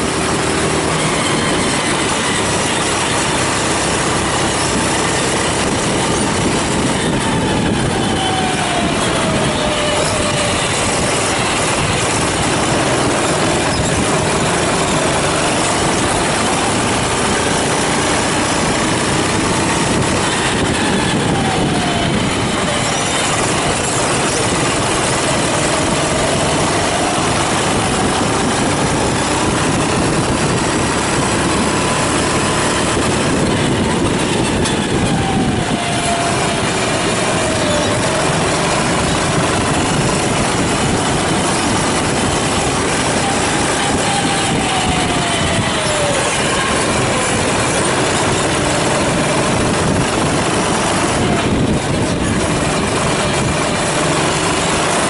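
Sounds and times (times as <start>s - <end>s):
kart engine revving: 0.0s - 55.0s
steady rushing noise: 0.0s - 55.0s.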